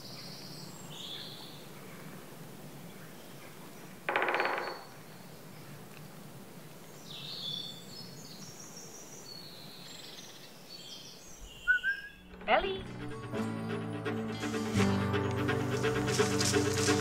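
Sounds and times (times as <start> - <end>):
faint high bird chirps: 9.2 - 12.8.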